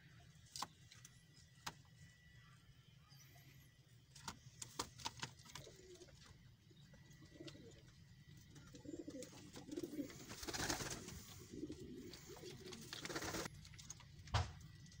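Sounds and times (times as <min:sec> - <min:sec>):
pigeons cooing: 0:05.5 - 0:13.5.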